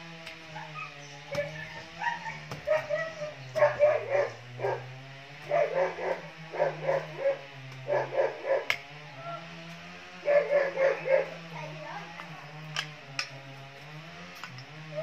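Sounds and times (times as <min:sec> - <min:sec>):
dog barking: 0:00.6 - 0:08.7, 0:10.2 - 0:11.4.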